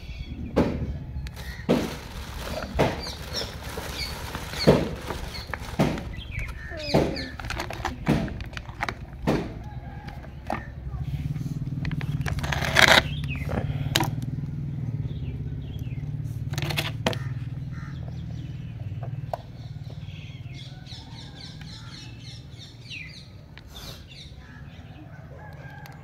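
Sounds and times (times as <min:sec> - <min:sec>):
bird chirping rapidly: 0:00.0 - 0:07.5, 0:13.0 - 0:13.5
plastic packaging clicks and crinkles: 0:01.2 - 0:09.4.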